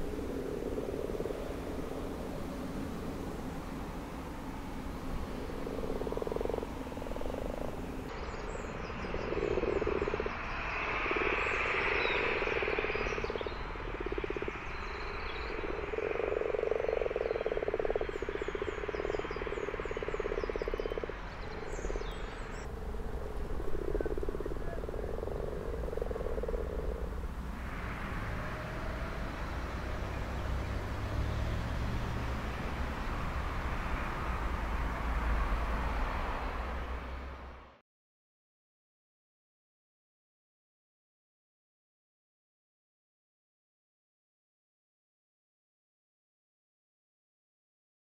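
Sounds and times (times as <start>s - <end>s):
frogs croaking: 0.0s - 37.6s.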